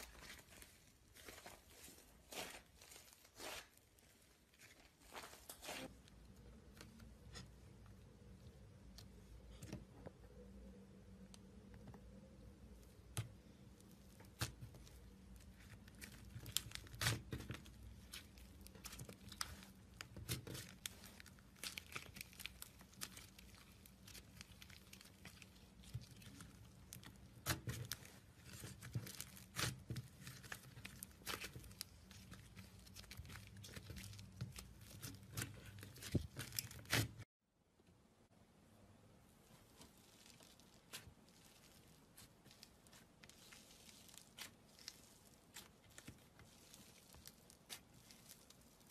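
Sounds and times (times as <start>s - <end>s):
slime crackling and popping: 13.1s - 37.2s, 39.8s - 48.9s.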